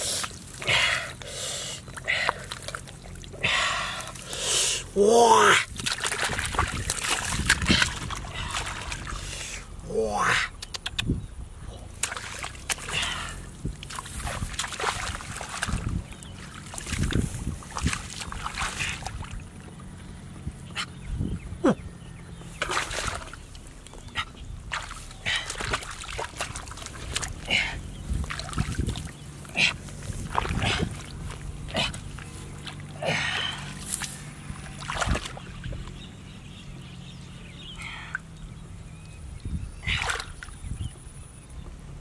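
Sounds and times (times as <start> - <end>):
hands splashing in stream: 1.8 - 4.8, 5.7 - 9.7, 11.8 - 19.9, 22.5 - 36.0, 39.8 - 40.6.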